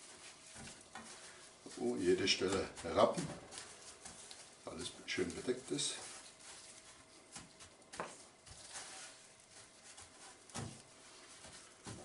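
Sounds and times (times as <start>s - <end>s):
gloved hands rubbing meat: 0.0s - 12.0s.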